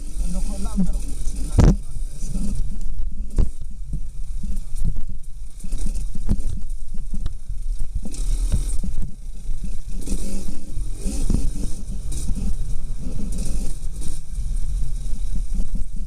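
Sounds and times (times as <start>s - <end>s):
dirt bike low rumble: 0.0s - 16.0s
knocks and rattles over bumps: 0.0s - 16.0s.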